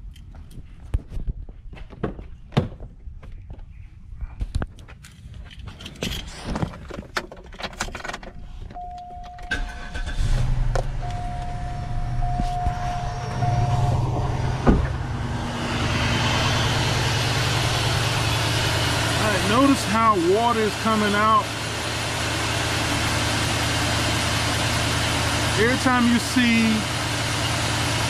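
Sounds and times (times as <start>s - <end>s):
car engine starting and idling: 5.8s - 28.0s
steady high tone: 8.8s - 26.8s.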